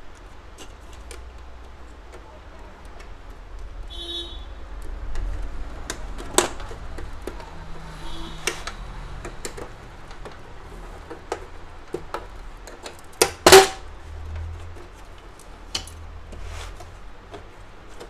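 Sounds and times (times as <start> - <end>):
plastic printer parts clicking: 4.8 - 7.6.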